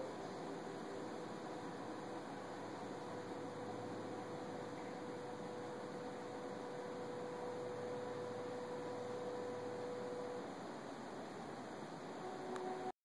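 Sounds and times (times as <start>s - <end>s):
even hiss: 0.0s - 12.9s
low electrical hum: 0.0s - 13.0s
steady mid-pitched tone: 0.0s - 13.0s.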